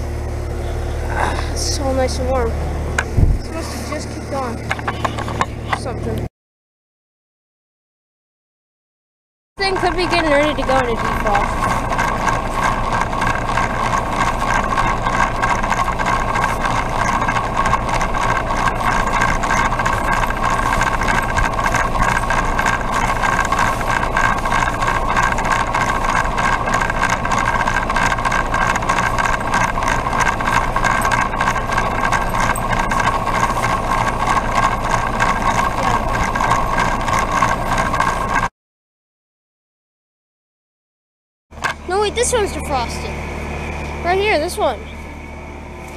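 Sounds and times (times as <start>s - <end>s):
heat pump humming: 0.0s - 6.3s, 9.6s - 38.5s, 41.5s - 45.9s.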